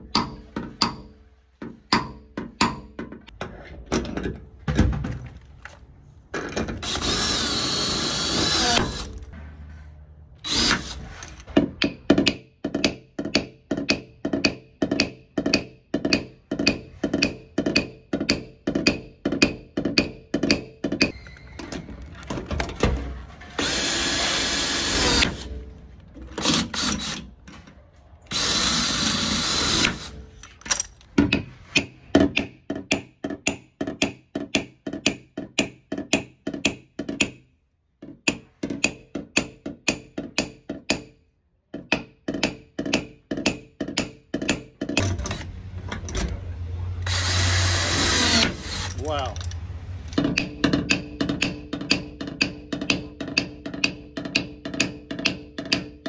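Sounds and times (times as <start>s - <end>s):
tool whirring: 6.4s - 9.4s, 10.4s - 11.5s, 23.5s - 27.5s, 28.3s - 31.1s, 45.0s - 50.4s.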